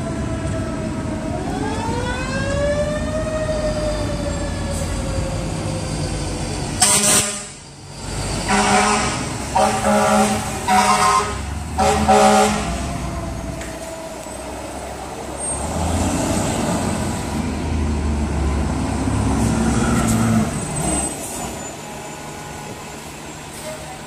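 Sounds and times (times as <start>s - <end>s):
truck diesel engines: 0.0s - 24.0s
loud horn blast: 6.8s - 7.6s, 8.5s - 12.8s.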